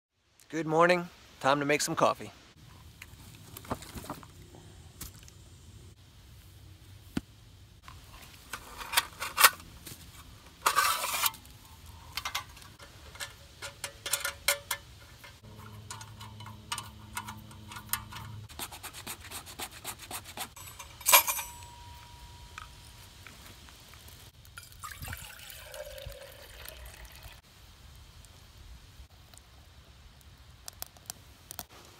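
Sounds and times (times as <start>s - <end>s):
rustling of sticks and bark: 2.6s - 5.4s, 7.8s - 21.0s, 22.0s - 24.6s
metal clicks and clinks: 12.1s - 18.5s, 20.6s - 22.9s.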